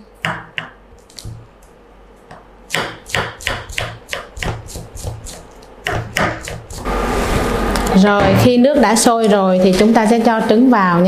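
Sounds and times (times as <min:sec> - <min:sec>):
knife chopping herbs on wood: 0:02.7 - 0:06.9.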